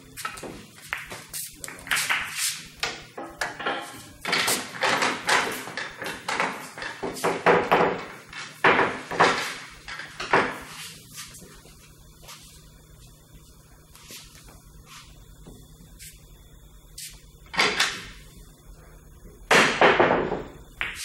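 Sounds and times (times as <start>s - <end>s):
pool balls clacking: 0.0s - 11.7s, 19.4s - 21.0s.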